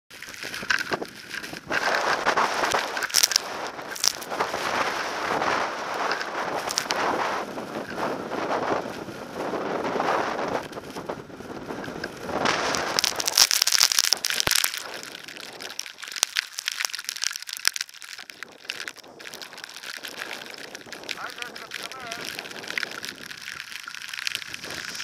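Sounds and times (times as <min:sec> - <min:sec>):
wind buffeting microphone: 0:00.1 - 0:13.5, 0:18.3 - 0:25.0
scattered clicks: 0:00.2 - 0:07.2, 0:11.8 - 0:25.0
skis hissing and scraping on snow: 0:00.2 - 0:25.0.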